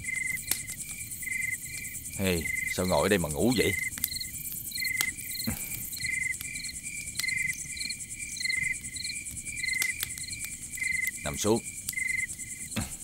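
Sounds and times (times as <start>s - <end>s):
crickets chirping: 0.0s - 13.0s
high insect buzz: 0.0s - 13.0s.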